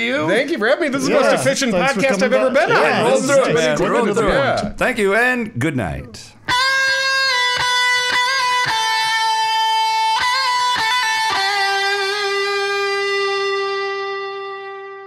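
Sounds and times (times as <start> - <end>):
solo electric guitar melody: 6.5 - 15.0.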